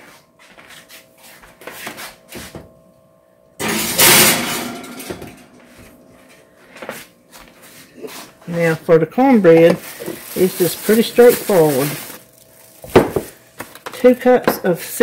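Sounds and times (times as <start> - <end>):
oven door and rack rush: 3.6 - 5.5.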